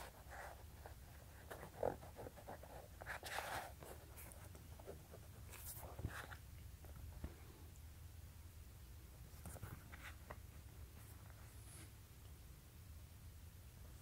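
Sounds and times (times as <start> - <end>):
hands rustling a sneaker: 0.0 - 7.5.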